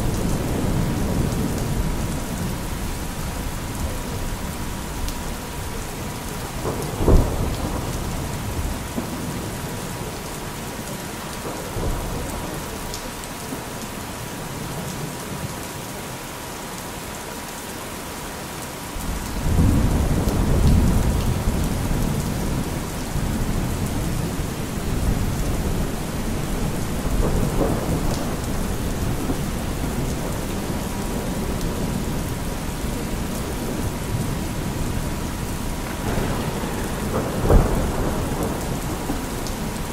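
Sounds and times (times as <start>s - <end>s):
thunder rumble: 0.0s - 10.3s, 19.0s - 39.9s
steady rain: 0.0s - 39.9s
thunder crack: 6.6s - 9.2s, 19.1s - 32.4s, 35.7s - 39.9s.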